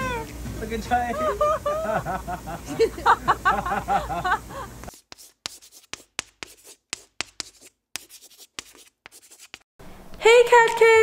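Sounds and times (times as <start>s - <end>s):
scratching strokes: 4.9s - 9.7s.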